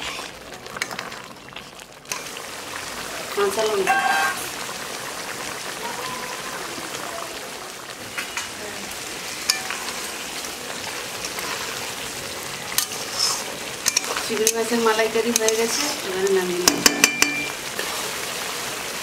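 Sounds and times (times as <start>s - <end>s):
curry sizzling in a pan: 0.0s - 19.0s
utensil clicking against pan: 13.8s - 15.9s.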